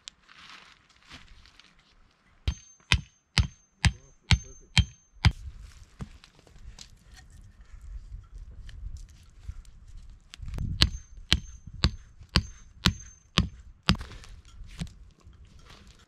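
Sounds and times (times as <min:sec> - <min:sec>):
hammer striking metal: 0:02.5 - 0:05.4, 0:10.8 - 0:14.0.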